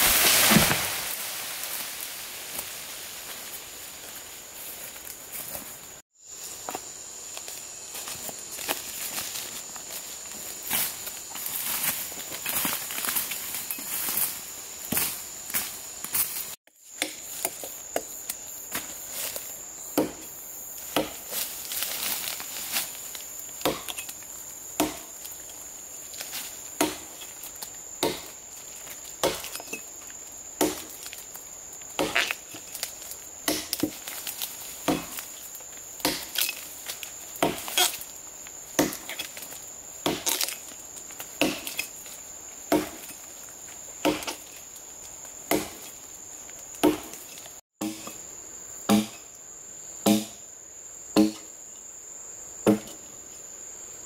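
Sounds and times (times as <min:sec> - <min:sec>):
hand tool chopping: 0:20.0 - 0:23.0, 0:23.6 - 0:24.2, 0:24.8 - 0:25.1, 0:26.4 - 0:27.3, 0:28.0 - 0:28.4, 0:29.2 - 0:29.8, 0:30.6 - 0:31.1, 0:32.0 - 0:32.7, 0:33.5 - 0:35.3, 0:36.0 - 0:36.7, 0:37.4 - 0:38.0, 0:38.8 - 0:42.0, 0:42.7 - 0:43.2, 0:44.0 - 0:44.5, 0:45.5 - 0:45.9, 0:46.8 - 0:48.2, 0:48.9 - 0:49.2, 0:50.0 - 0:50.4, 0:51.2 - 0:51.4, 0:52.7 - 0:53.0.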